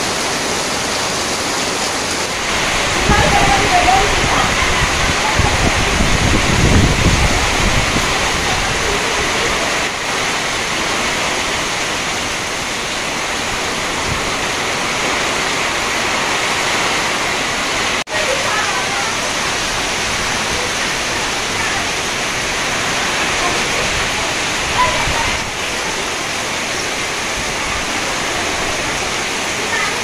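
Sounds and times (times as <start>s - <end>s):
heavy rain on trees and ground: 0.0s - 30.0s
runoff streaming off roof: 0.0s - 30.0s
wind buffeting microphone: 2.4s - 9.9s.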